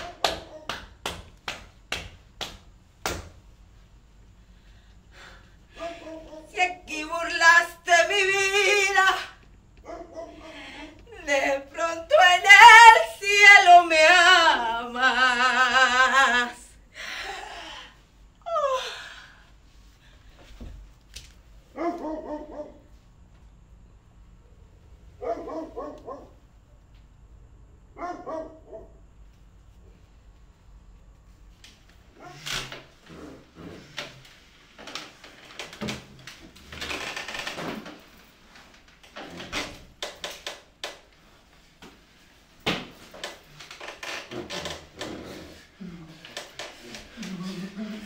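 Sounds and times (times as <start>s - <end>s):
dog barking: 9.8s - 10.5s, 21.7s - 22.9s, 25.2s - 26.4s, 28.0s - 29.0s.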